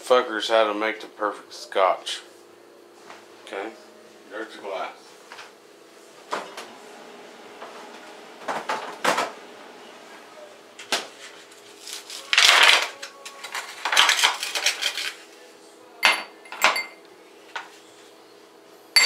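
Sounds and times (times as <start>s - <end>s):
kitchen knocks and clatters: 16.0s - 17.0s.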